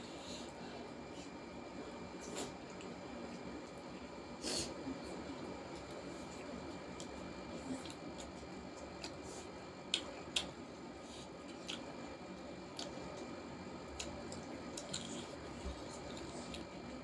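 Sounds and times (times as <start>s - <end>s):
lip smacks while eating: 5.8s - 10.6s, 11.2s - 16.8s.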